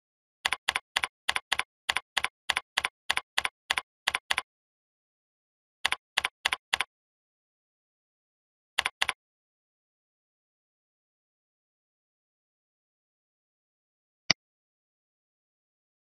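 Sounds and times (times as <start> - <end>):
computer keyboard typing clicks: 0.5 - 4.4, 5.8 - 6.9, 8.8 - 9.2.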